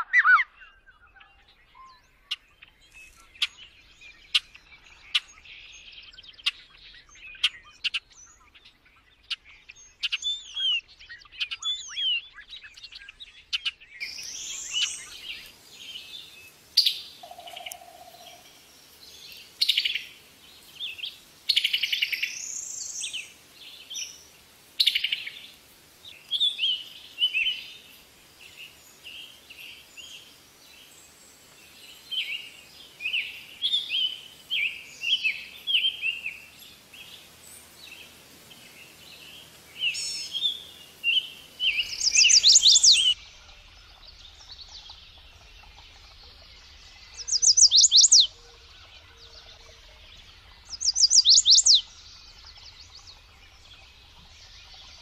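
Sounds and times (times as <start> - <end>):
bird singing short phrases: 0.0 - 8.6, 39.8 - 48.4, 50.6 - 51.9
faint bird chirps: 0.0 - 23.2, 26.1 - 55.0.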